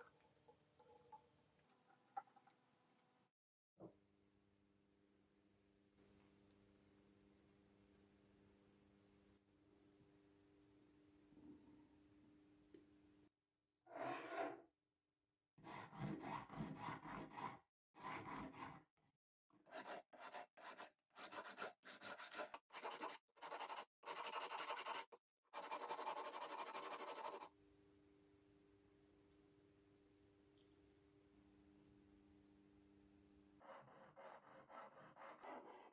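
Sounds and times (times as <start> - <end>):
file scraping copper wire: 15.6 - 18.8, 19.6 - 27.5, 33.6 - 35.9.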